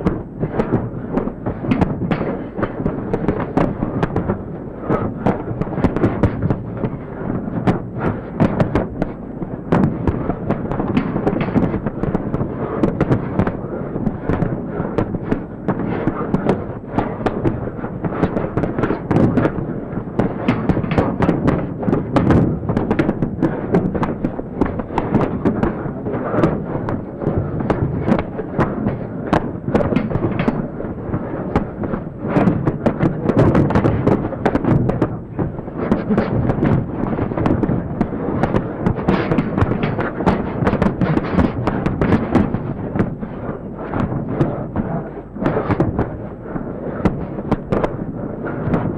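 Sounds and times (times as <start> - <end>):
dense crackling and pops: 0.0 - 48.9.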